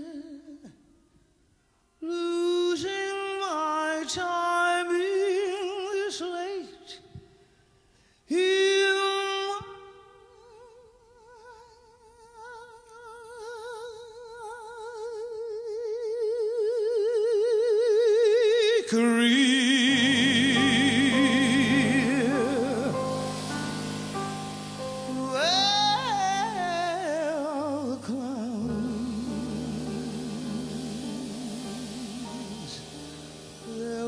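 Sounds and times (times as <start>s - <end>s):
woman singing with vibrato: 19.8s - 34.0s
instrumental accompaniment: 19.9s - 34.0s.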